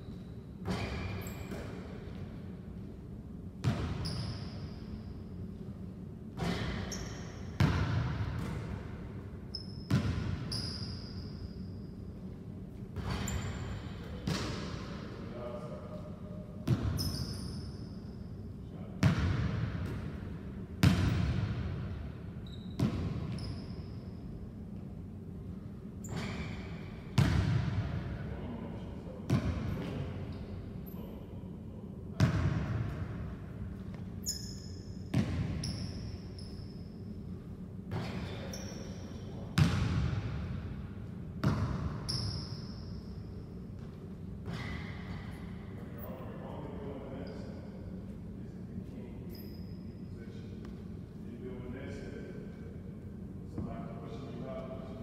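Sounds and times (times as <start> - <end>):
sneaker squeaks on floor: 0.0 - 1.9, 3.6 - 5.2, 6.4 - 7.8, 9.5 - 12.0, 13.0 - 14.6, 16.7 - 18.3, 22.4 - 24.3, 26.0 - 27.3, 33.8 - 37.1, 37.9 - 39.8, 41.4 - 45.4, 47.2 - 47.6, 49.2 - 50.2.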